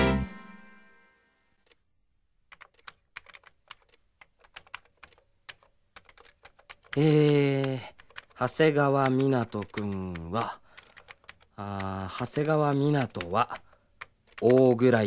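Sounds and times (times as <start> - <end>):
music chord: 0.0 - 1.5
keyboard typing clicks: 2.5 - 14.9.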